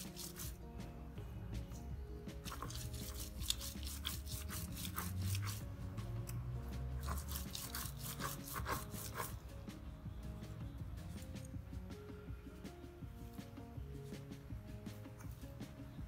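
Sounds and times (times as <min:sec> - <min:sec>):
stone rubbing on stone: 0:02.5 - 0:05.6, 0:07.0 - 0:09.3.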